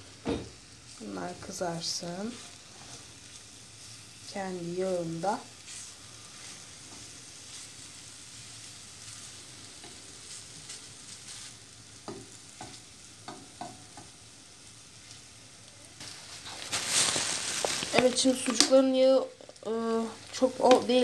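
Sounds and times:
sausage sizzling in a frying pan: 0.0 - 21.0
fork tapping and scraping pan: 12.0 - 14.2.

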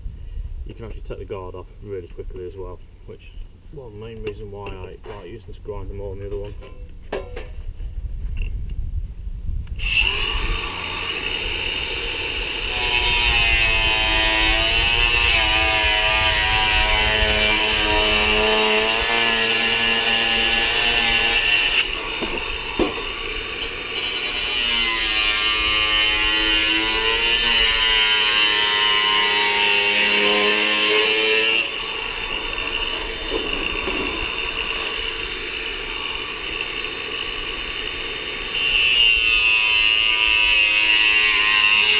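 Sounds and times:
angle grinder cutting sheet steel: 9.8 - 41.9.

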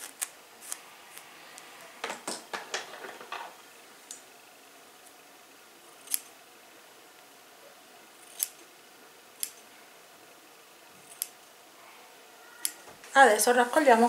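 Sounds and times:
scissors snipping hair: 6.0 - 6.3, 8.2 - 8.6, 9.4 - 9.6, 11.0 - 11.4, 12.6 - 12.8.

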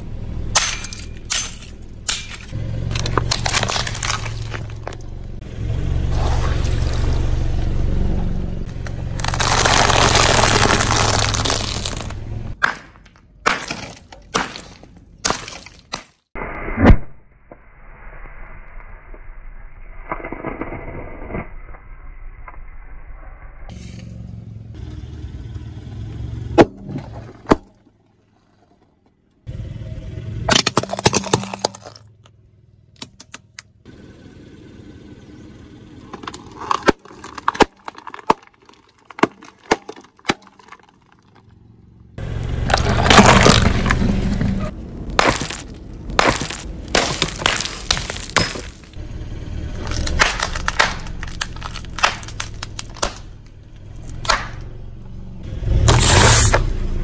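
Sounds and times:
low tyre rumble: 0.0 - 15.3, 17.5 - 57.0
tyre crushing objects popping: 2.9 - 5.0, 8.7 - 16.2, 42.6 - 49.0, 49.8 - 54.6.

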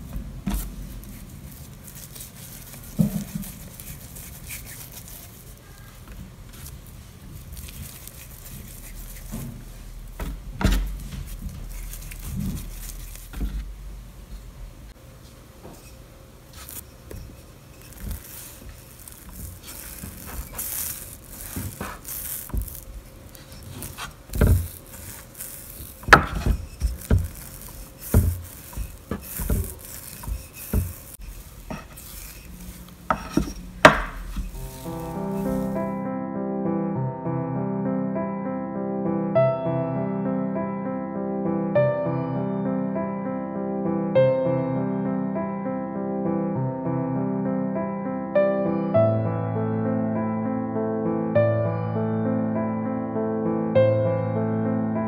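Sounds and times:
dough tapping on wooden board: 33.1 - 34.4.

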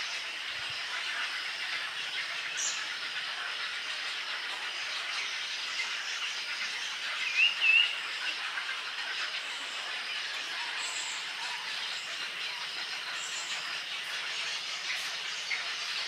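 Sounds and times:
dense chatter of many birds: 0.0 - 16.0
short warbling bird calls: 5.8 - 8.3.

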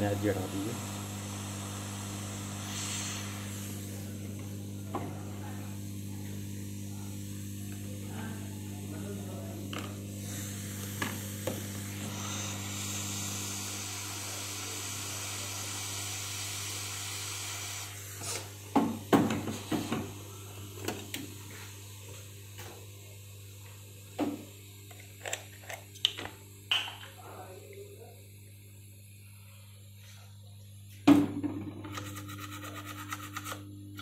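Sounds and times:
hot-air gun hissing: 0.0 - 20.9.

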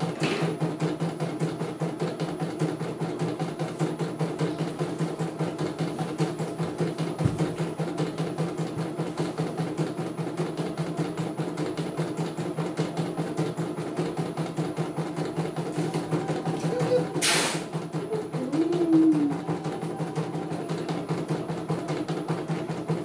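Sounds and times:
motor hum: 12.6 - 23.0.

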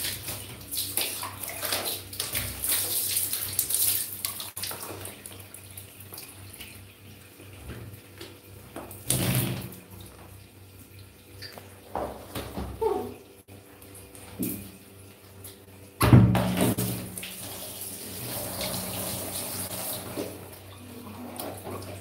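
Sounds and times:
water splashing: 0.0 - 6.8.

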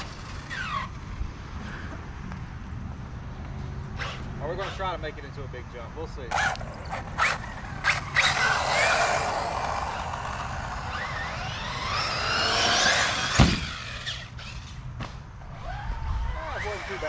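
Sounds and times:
nitro engine revving: 6.3 - 17.0
sharp thud on landing: 13.2 - 13.8.

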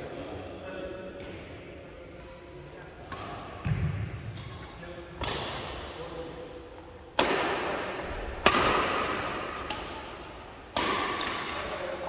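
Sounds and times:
rackets hitting shuttlecock: 3.0 - 5.8, 7.1 - 12.0.

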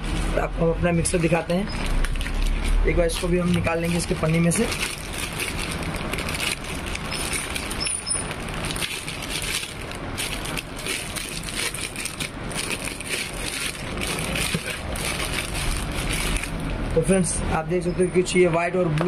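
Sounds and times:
plastic bag crinkling: 1.0 - 16.8.

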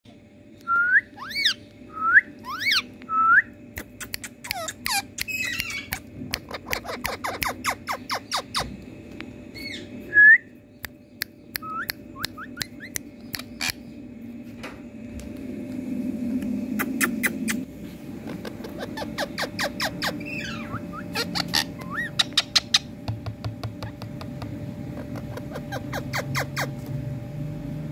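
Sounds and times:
parakeets whistled calls: 0.7 - 8.7, 9.6 - 10.1, 18.3 - 23.0, 25.0 - 26.8.

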